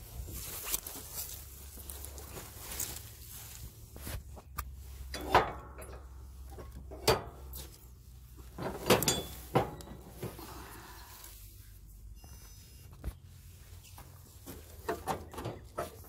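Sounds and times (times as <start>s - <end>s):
metal tools knocking and clanking: 5.1s - 7.5s, 8.6s - 10.1s.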